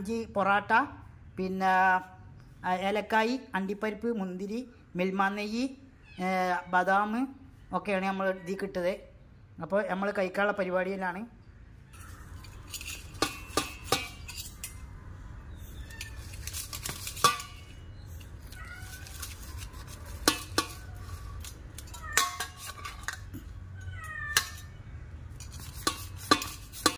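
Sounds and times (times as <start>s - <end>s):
metal spatula scraping steel pan: 12.0s - 14.9s, 15.5s - 23.5s, 24.3s - 26.9s.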